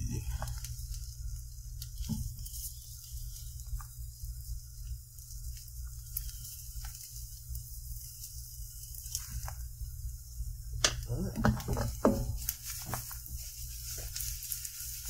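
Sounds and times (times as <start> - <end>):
eggs sizzling in a skillet: 0.0 - 15.0
steady low hum: 0.0 - 15.0.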